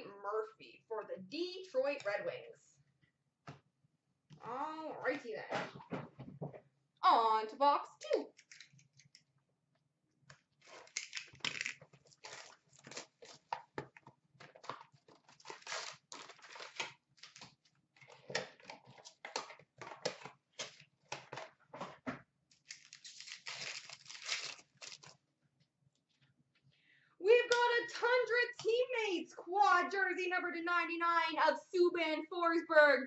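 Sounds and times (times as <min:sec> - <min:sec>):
plastic wrap crinkling: 0:10.5 - 0:18.2, 0:22.5 - 0:25.2
cardboard tearing: 0:10.6 - 0:13.5, 0:14.6 - 0:17.6, 0:22.6 - 0:25.1
card packs rustling: 0:10.6 - 0:25.2.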